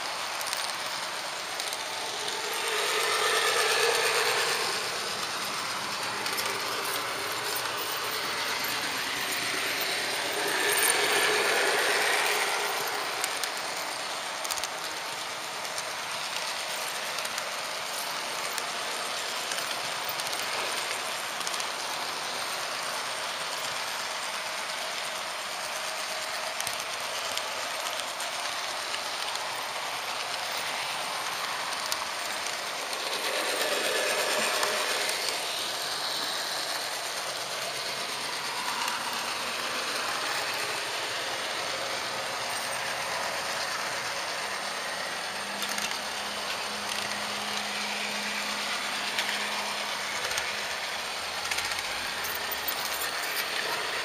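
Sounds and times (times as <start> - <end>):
model train rattling on rails: 0.0 - 54.0.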